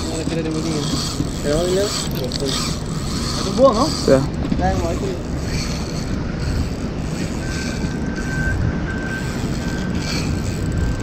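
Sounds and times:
fishing reel whirring: 0.0 - 11.0
steady rushing noise: 0.0 - 11.0
faint thin tone: 7.4 - 10.0.

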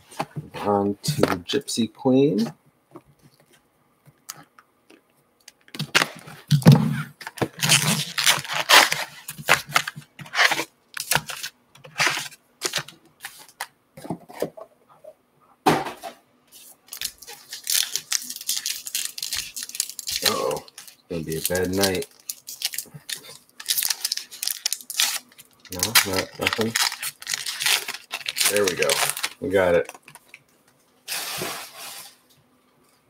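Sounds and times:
foil packs crinkling: 5.7 - 13.7, 16.8 - 30.4
plastic wrap tearing: 5.8 - 13.6, 16.9 - 30.4.

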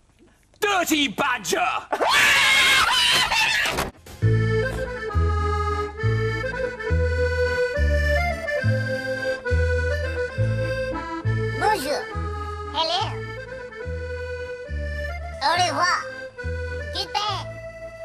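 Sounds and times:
person screaming: 2.0 - 3.8
accordion music: 4.0 - 18.0.

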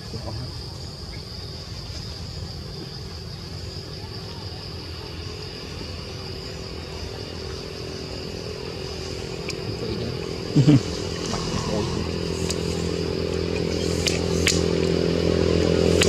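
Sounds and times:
constant high hum: 0.0 - 16.0
low rumble: 11.2 - 14.9.

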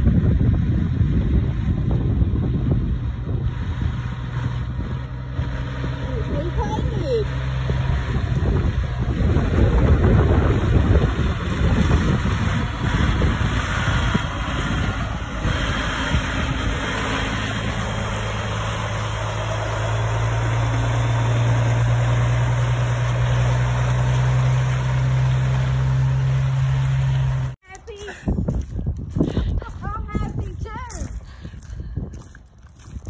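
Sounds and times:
truck diesel engine idling: 0.1 - 27.6.

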